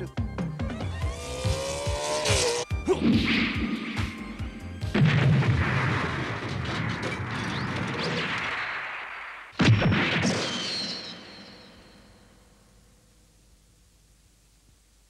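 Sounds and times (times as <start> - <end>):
explosion rumbling: 3.0 - 11.6.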